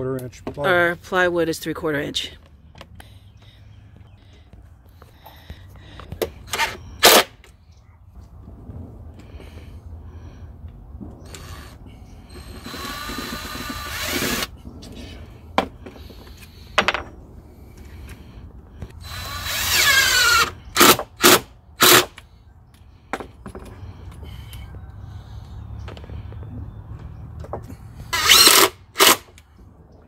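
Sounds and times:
cordless drill driving screws: 0:06.5 - 0:07.3, 0:11.3 - 0:14.5, 0:19.0 - 0:22.2, 0:28.1 - 0:29.3.

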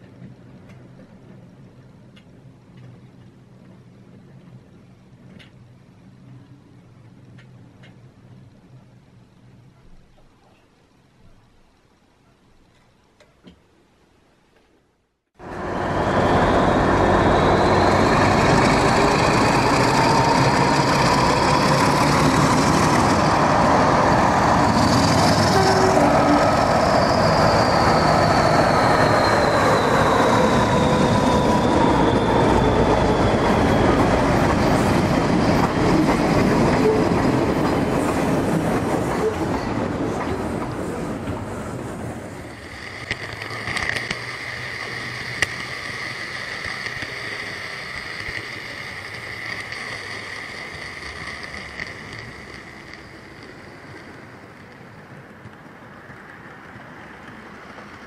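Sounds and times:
train passing: 0:15.4 - 0:58.0
train rolling with high ring: 0:15.4 - 0:58.0.

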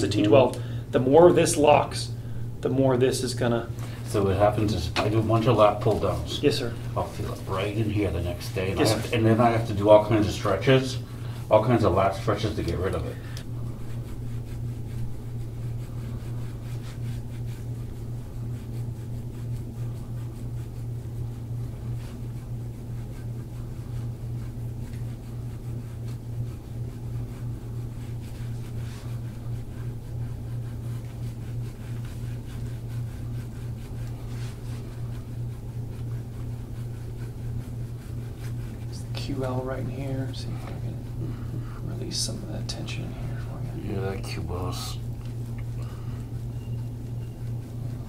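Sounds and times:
low machine hum: 0:00.0 - 0:48.0.

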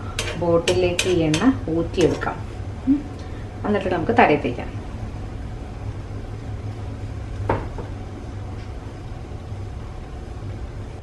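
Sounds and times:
metal spoon clinking on pan: 0:00.2 - 0:02.1.

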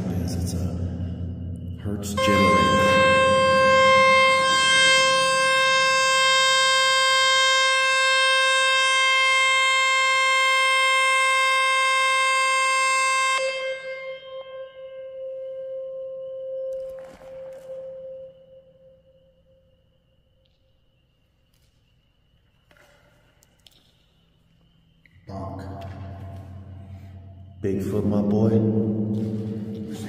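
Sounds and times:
steady tone from phone speaker: 0:02.2 - 0:08.2.

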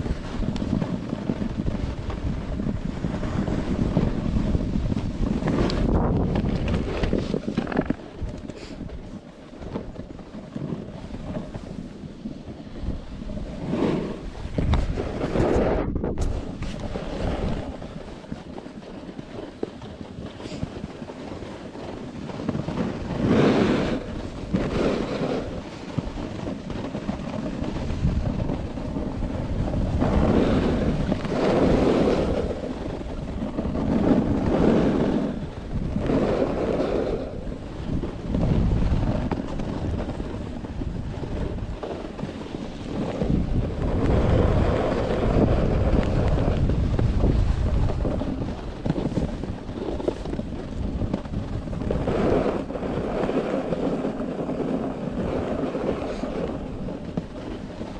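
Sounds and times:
skis scraping over snow: 0:00.0 - 0:57.9
wind on microphone: 0:00.0 - 0:57.9.

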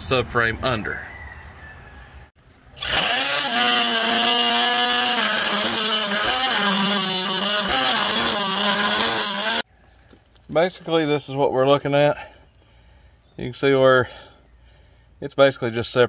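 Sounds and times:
oscillating multi-tool cutting metal: 0:02.8 - 0:09.6.

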